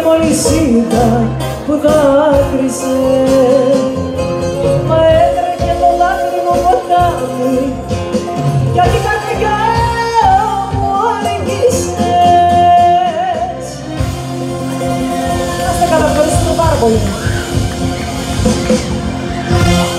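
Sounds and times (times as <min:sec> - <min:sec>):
person singing: 0:00.0 - 0:08.2
live band music: 0:00.0 - 0:19.9.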